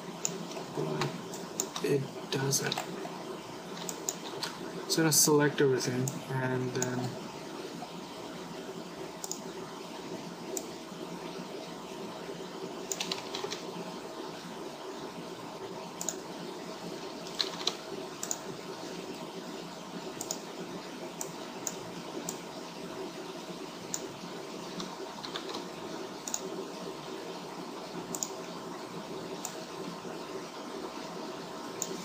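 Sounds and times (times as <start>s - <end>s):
keyboard and mouse clicks: 0.2s - 1.9s, 2.6s - 2.9s, 3.7s - 4.6s, 9.2s - 9.5s, 12.9s - 13.7s, 16.0s - 16.2s, 17.2s - 18.5s, 20.2s - 20.4s, 24.7s - 26.5s, 28.1s - 28.4s, 31.8s - 32.0s.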